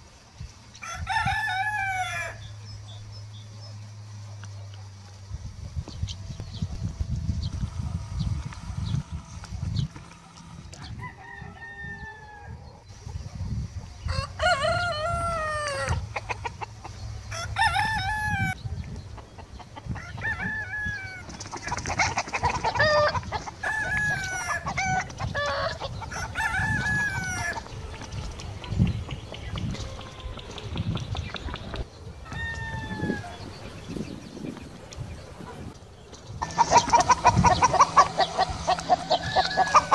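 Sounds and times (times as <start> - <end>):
roosters crowing: 0.7 - 2.7, 6.2 - 13.0, 13.9 - 18.6, 19.8 - 30.8, 32.1 - 34.2, 36.4 - 39.9.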